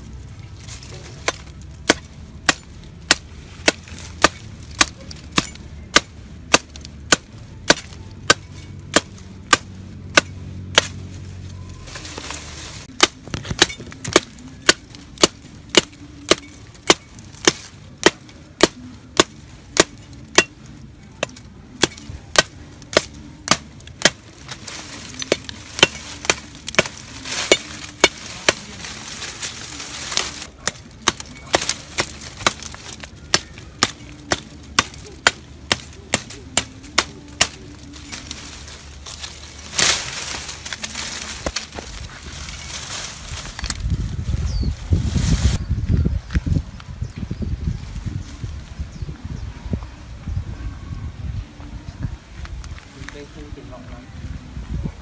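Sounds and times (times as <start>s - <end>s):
machete chopping wood: 1.2s - 11.0s, 12.9s - 20.6s, 21.2s - 28.8s, 29.5s - 38.5s.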